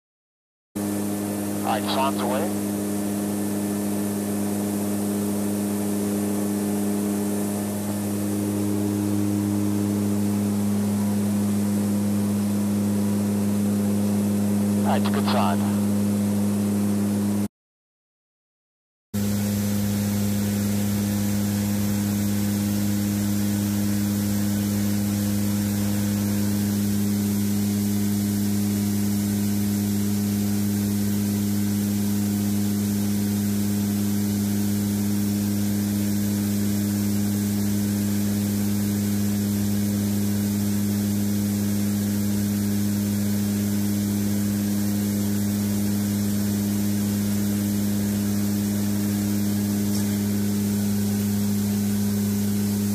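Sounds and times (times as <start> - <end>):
turboprop engines humming: 0.8 - 16.4.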